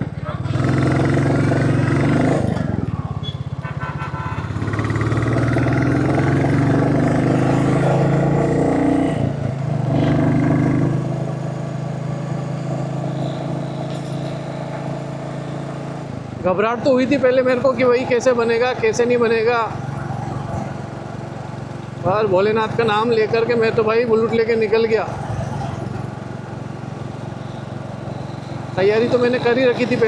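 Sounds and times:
motorcycle engine running: 0.0s - 17.8s.

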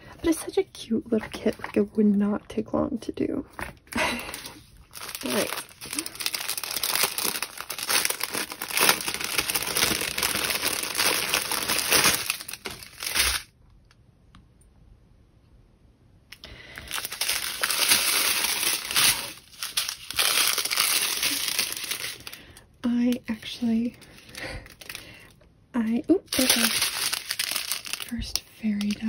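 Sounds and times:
plastic packaging crinkling and tearing: 3.5s - 13.5s, 16.4s - 29.0s.

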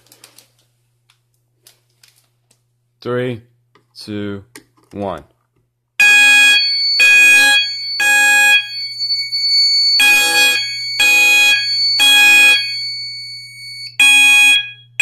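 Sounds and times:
fire alarm horn blasts: 6.0s - 15.0s.

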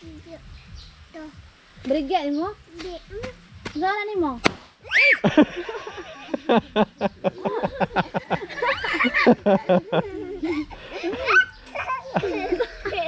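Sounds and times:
toddler laughing and squealing: 4.9s - 5.4s, 10.0s - 13.0s.

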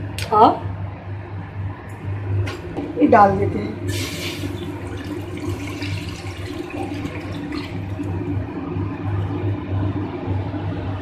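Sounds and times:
milk pouring into metal pot: 3.9s - 8.5s.

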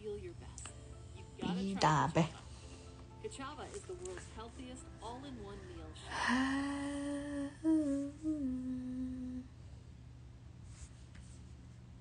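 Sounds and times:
woman humming: 6.0s - 9.6s.

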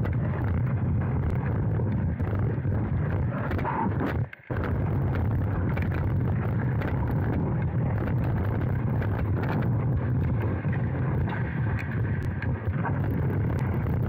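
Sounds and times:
low rumble: 0.0s - 14.0s
skates and sticks scraping ice: 5.1s - 13.8s.

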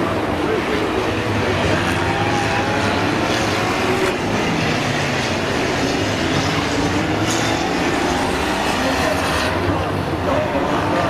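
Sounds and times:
racing car engines revving: 0.0s - 11.0s.

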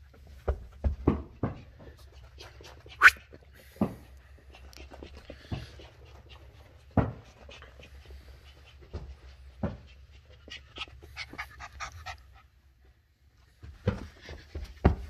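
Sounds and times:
puppy panting: 0.1s - 13.0s
dull thumps on carpet: 13.6s - 15.0s.

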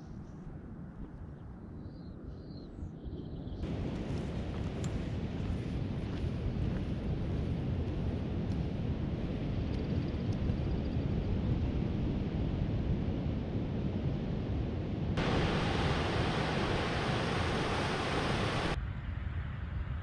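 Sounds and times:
wind buffeting microphone: 0.0s - 20.0s
ocean surf: 15.2s - 18.8s.

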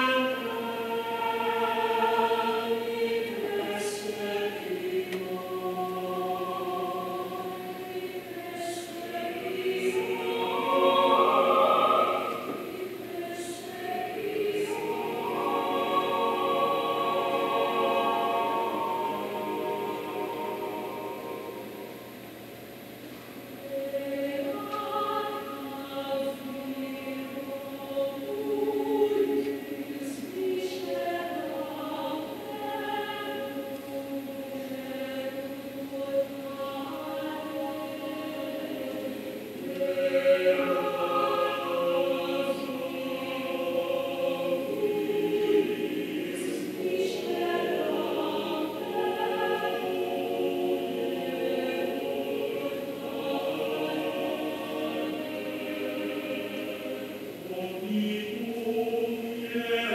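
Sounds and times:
choir singing a cappella: 0.0s - 59.9s.

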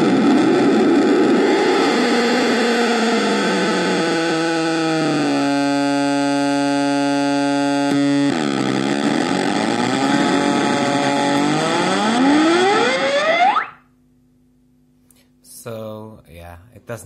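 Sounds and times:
buzzing drone: 0.0s - 13.8s
wavering gliding squeal: 9.1s - 13.8s.

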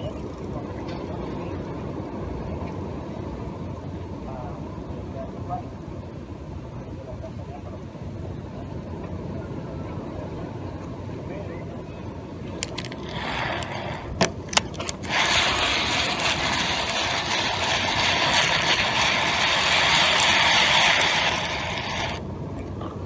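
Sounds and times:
fishing reel gears whirring: 12.6s - 22.2s.

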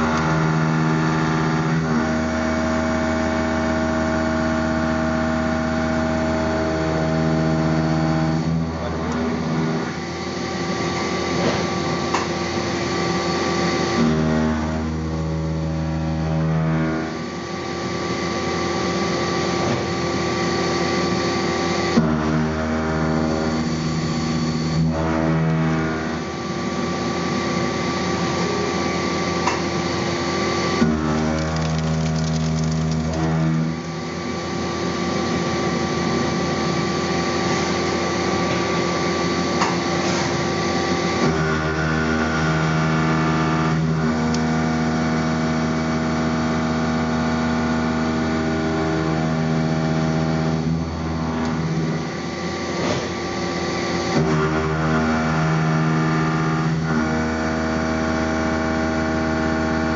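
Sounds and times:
milling machine whine: 0.0s - 59.9s.

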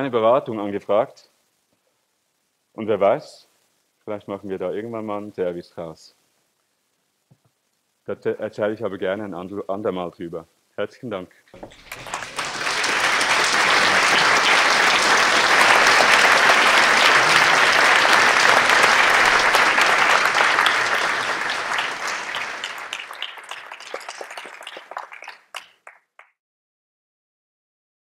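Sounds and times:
audience applauding: 11.6s - 26.3s.

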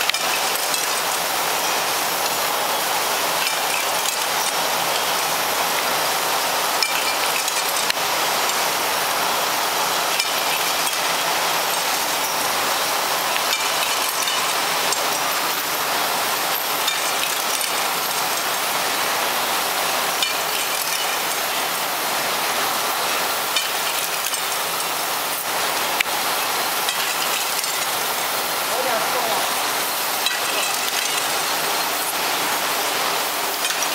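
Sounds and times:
glass clinking: 0.0s - 5.3s, 6.7s - 8.7s, 9.8s - 21.8s, 23.5s - 25.4s, 26.4s - 28.2s, 30.1s - 33.9s.

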